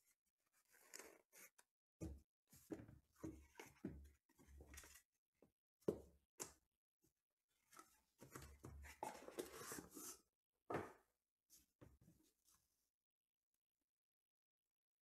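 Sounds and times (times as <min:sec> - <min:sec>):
soft rubs and scrapes: 0:08.9 - 0:10.3.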